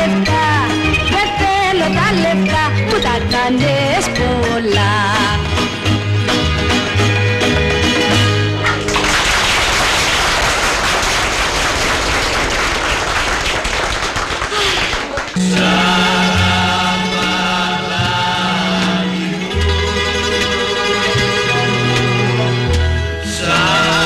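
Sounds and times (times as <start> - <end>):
bouzouki band playing: 0.0 - 9.1, 15.4 - 24.0
audience applauding: 8.6 - 16.0.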